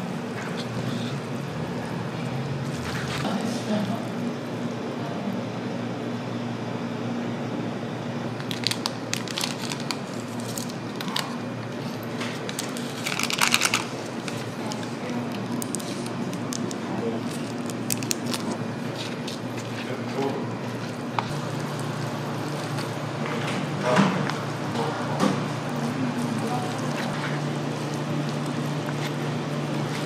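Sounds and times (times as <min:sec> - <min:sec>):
steady low hum: 0:00.0 - 0:30.0
foil sachet crinkling and tearing: 0:08.4 - 0:11.4, 0:12.3 - 0:19.8.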